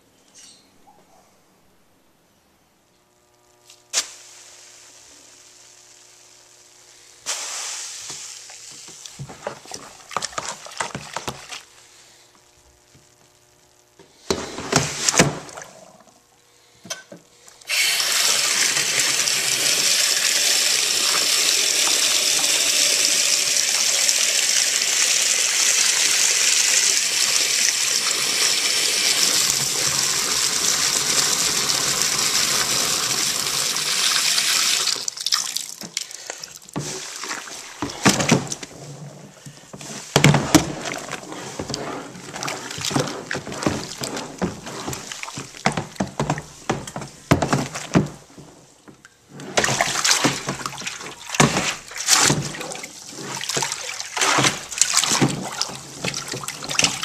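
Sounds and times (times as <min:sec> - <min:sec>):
water running hard: 0:07.3 - 0:11.8, 0:17.7 - 0:39.0, 0:39.8 - 0:48.3, 0:49.3 - 0:57.0
knocks and splashes in water: 0:09.2 - 0:11.7, 0:36.8 - 0:38.8, 0:40.2 - 0:57.0.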